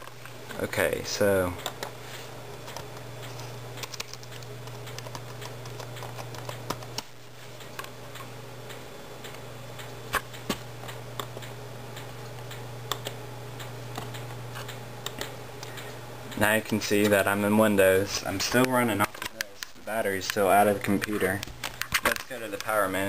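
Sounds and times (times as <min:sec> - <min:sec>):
steady low hum: 0:00.0 - 0:23.0
laptop keys clicking: 0:02.6 - 0:08.3, 0:09.3 - 0:13.2.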